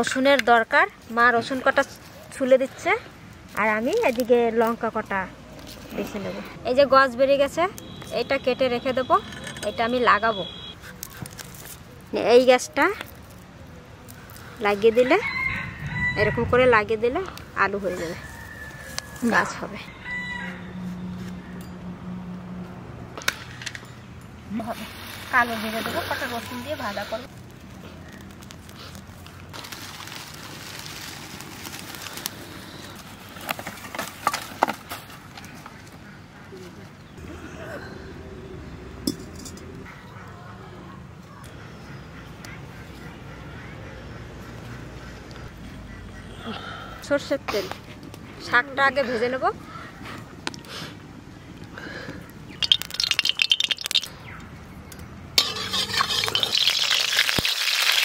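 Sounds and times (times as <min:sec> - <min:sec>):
dry leaves burning crackle: 0:03.3 - 0:04.8, 0:10.8 - 0:16.1, 0:16.7 - 0:19.6, 0:24.7 - 0:34.3, 0:51.9 - 0:54.1, 0:55.4 - 0:58.0
oil crackling in pan: 0:52.6 - 0:54.1, 0:55.4 - 0:58.0
sticks snapping and knocking: 0:52.6 - 0:54.1
metal spatula scraping pan: 0:55.4 - 0:56.8.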